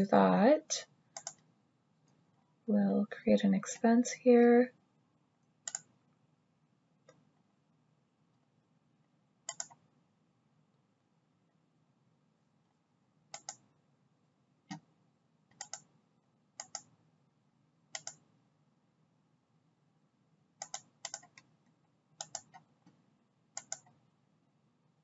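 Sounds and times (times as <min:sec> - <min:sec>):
computer mouse clicks: 0:01.1 - 0:01.5, 0:05.6 - 0:06.0, 0:09.4 - 0:09.9, 0:13.3 - 0:13.7, 0:14.7 - 0:14.9, 0:15.5 - 0:16.0, 0:16.6 - 0:17.0, 0:17.9 - 0:18.3, 0:20.6 - 0:21.6, 0:22.2 - 0:23.0, 0:23.6 - 0:24.0
keyboard clicks: 0:01.2 - 0:01.5, 0:05.6 - 0:05.9, 0:09.5 - 0:09.8, 0:13.3 - 0:13.6, 0:15.5 - 0:15.9, 0:16.6 - 0:16.9, 0:17.9 - 0:18.3, 0:20.6 - 0:21.5, 0:22.2 - 0:22.7, 0:23.6 - 0:24.0.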